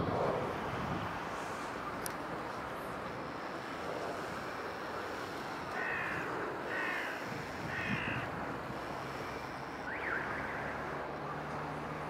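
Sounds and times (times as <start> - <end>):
wind and water hiss: 0.0 - 12.0
crow cawing: 5.7 - 8.3.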